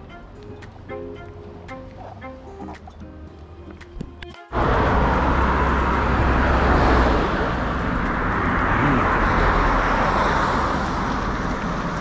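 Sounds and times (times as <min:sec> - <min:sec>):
car passing: 0:04.5 - 0:12.0.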